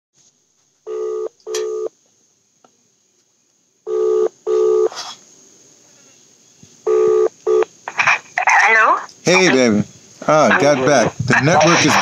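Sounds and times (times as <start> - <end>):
telephone ringback tone: 0.9 - 1.9, 3.9 - 4.9, 6.9 - 7.7.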